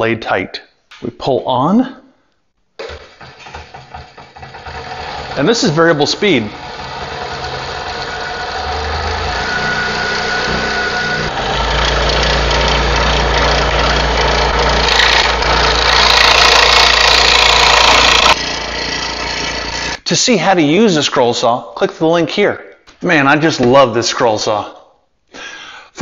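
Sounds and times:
saw blade cutting board: 0:03.6 - 0:20.0
scroll saw motor humming: 0:04.3 - 0:20.0.

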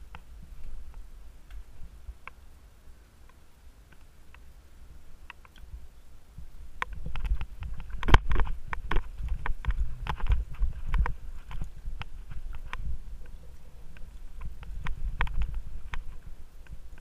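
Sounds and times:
bike tyres rumbling on trail: 0:04.0 - 0:17.0.

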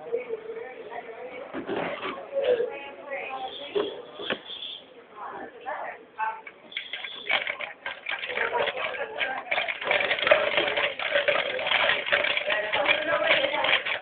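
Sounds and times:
ice cubes rattling in cocktail shaker: 0:06.7 - 0:14.0.

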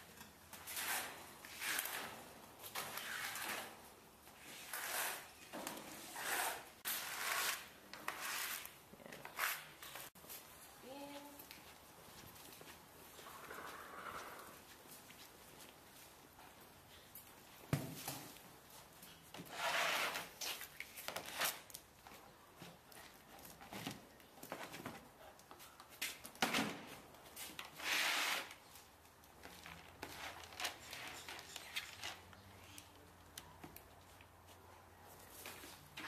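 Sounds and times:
rustling or scraping: 0:00.0 - 0:10.8, 0:12.2 - 0:22.3, 0:26.8 - 0:33.0.

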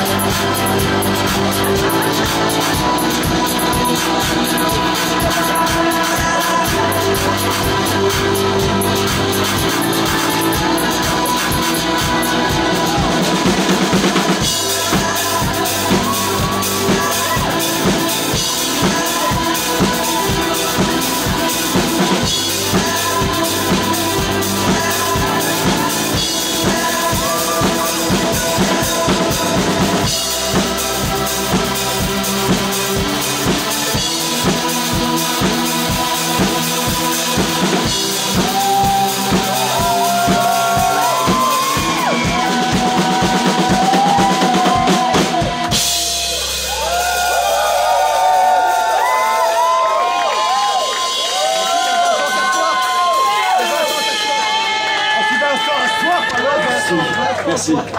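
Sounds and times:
bass drum and snare beat: 0:00.0 - 0:55.0
live band playing loud music: 0:00.0 - 0:57.9.

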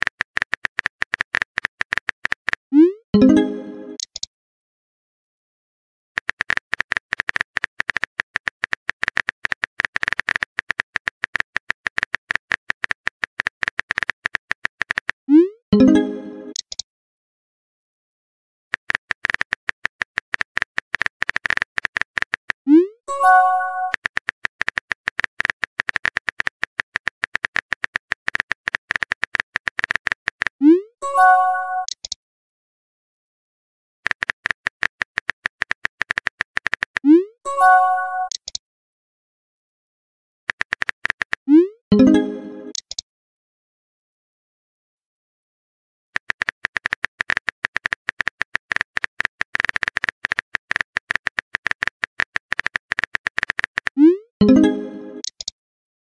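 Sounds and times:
phone keyboard clicks: 0:00.0 - 0:02.6, 0:06.2 - 0:15.2, 0:18.8 - 0:22.6, 0:23.8 - 0:30.6, 0:31.8 - 0:32.2, 0:34.0 - 0:37.1, 0:40.5 - 0:41.4, 0:42.7 - 0:43.0, 0:46.2 - 0:54.0, 0:55.2 - 0:55.5
bright multi-tone chime: 0:03.2 - 0:04.0.

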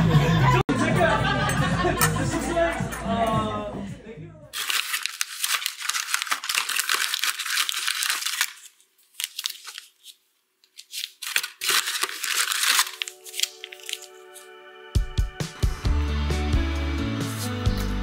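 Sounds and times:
paper packaging rustling: 0:04.6 - 0:14.5
soft music: 0:12.1 - 0:18.0.

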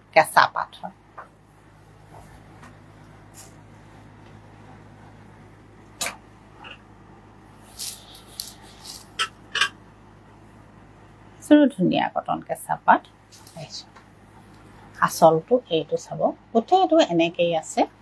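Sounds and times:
steady low hum: 0:00.0 - 0:18.0
cloth rustling: 0:07.6 - 0:09.3.

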